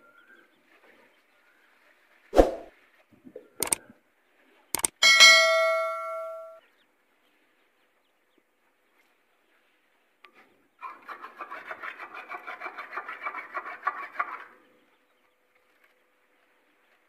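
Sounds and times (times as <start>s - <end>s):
sharp mouse clicks: 3.6s - 3.8s, 4.8s - 5.0s
bell ding: 5.0s - 6.6s.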